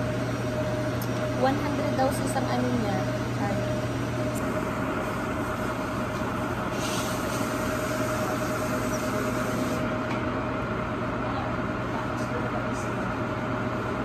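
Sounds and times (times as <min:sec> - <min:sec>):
hood hair dryer running: 0:00.0 - 0:10.9.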